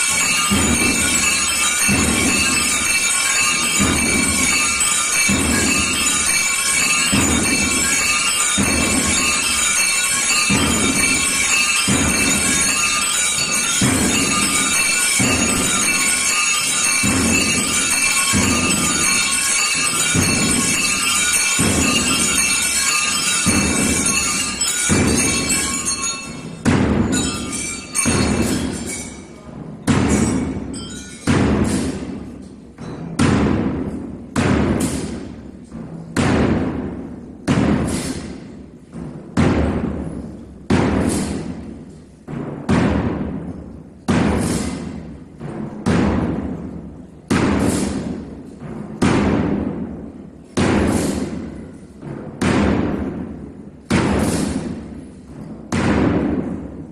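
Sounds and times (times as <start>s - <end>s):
drum march beat echoing: 0.0s - 29.0s, 29.6s - 56.9s
high bell-like ringing: 0.0s - 33.0s.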